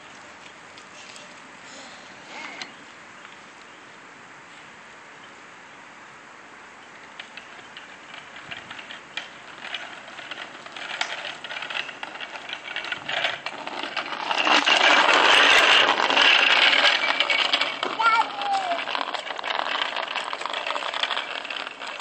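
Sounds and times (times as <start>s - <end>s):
plastic toy wheels rattling: 7.2s - 22.0s.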